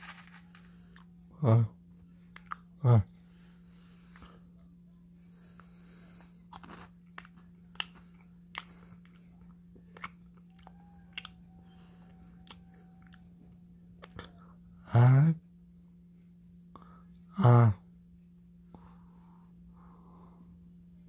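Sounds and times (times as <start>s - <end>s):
chewing dry cereal: 0.0s - 1.2s, 2.3s - 2.7s, 5.3s - 14.4s
low steady hum: 0.0s - 21.0s.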